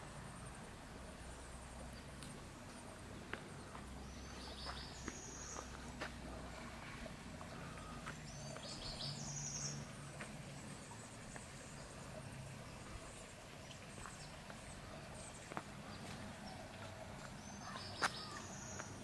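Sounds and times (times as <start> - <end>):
faint high bird chirps: 17.4 - 19.0.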